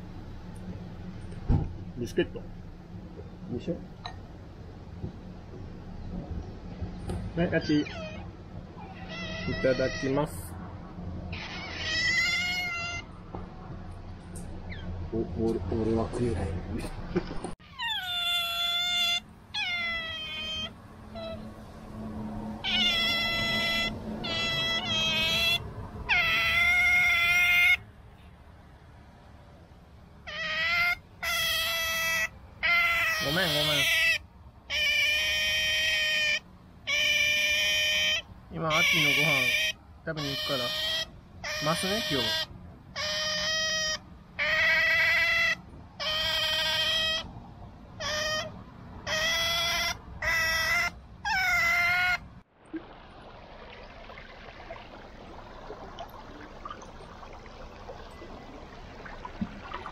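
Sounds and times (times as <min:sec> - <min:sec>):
otter whining calls: 0:07.5 - 0:10.5, 0:11.3 - 0:13.2, 0:17.6 - 0:21.5, 0:22.4 - 0:27.9, 0:30.2 - 0:47.3, 0:48.0 - 0:52.4.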